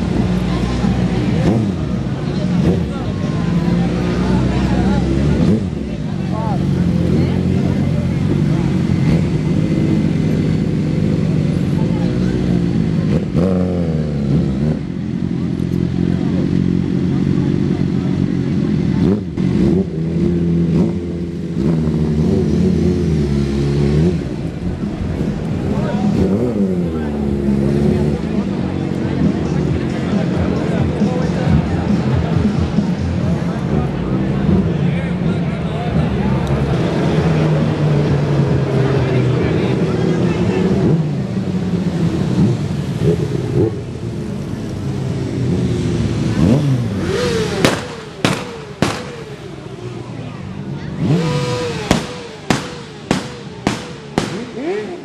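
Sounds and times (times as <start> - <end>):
motorcycle engines revving: 0.0 - 55.0
sharp bang: 47.6 - 49.4, 51.8 - 54.7.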